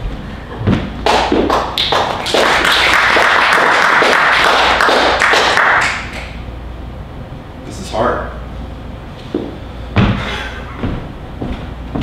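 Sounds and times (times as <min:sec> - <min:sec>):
audience applauding: 0:01.0 - 0:06.4.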